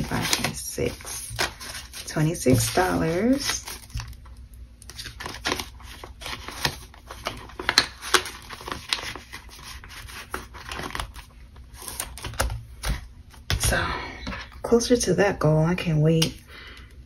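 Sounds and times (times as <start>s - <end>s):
banknotes and plastic envelope rustling: 0.0s - 13.0s.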